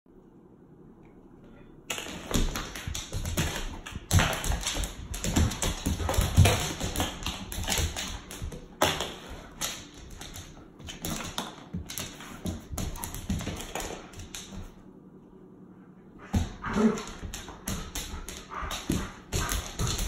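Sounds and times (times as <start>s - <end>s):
dog claws clicking on wooden floor: 1.9s - 14.7s.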